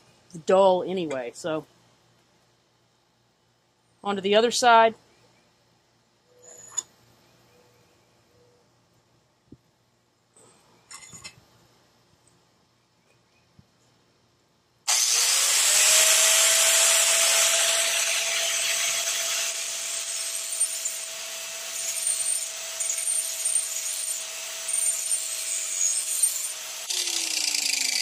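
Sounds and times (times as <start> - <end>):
angle grinder grinding metal: 14.9 - 28.0.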